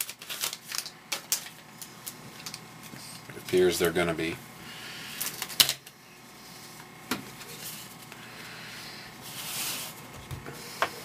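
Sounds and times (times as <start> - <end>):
cards rustling: 0.0 - 4.0.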